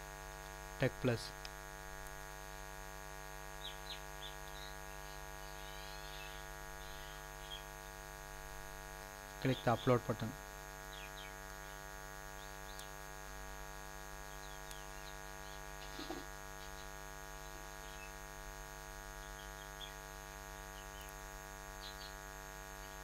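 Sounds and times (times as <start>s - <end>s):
steady electrical hum: 0.0s - 23.0s
faint bird chirps: 3.5s - 7.9s, 10.9s - 13.0s, 14.2s - 16.9s, 19.2s - 22.2s.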